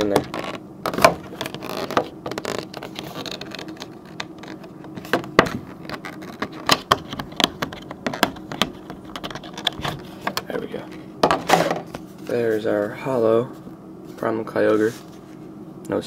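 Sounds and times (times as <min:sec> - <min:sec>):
plastic packaging scraping and clicking: 0:00.0 - 0:10.6.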